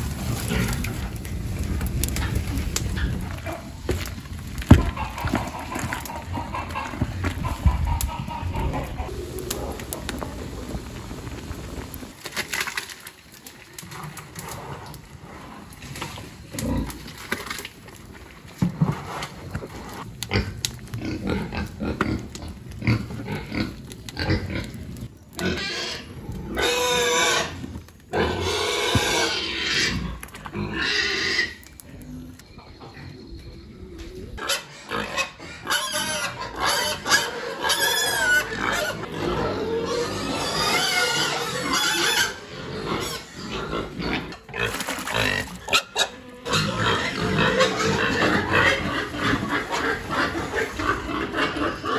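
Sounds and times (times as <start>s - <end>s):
pigs squealing: 4.6s - 10.2s, 20.3s - 33.2s, 34.4s - 51.9s.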